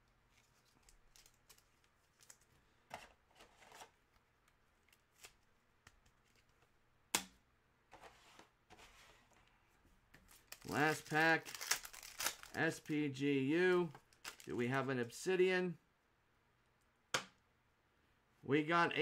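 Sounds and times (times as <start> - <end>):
trading cards rustling: 0.3 - 2.6, 10.2 - 14.7.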